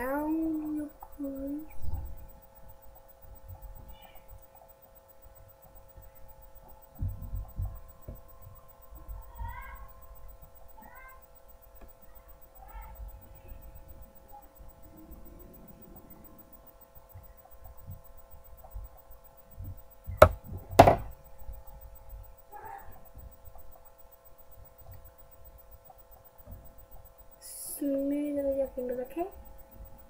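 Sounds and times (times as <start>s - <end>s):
steady hum: 0.0s - 30.0s
sharp knocks: 20.1s - 21.2s.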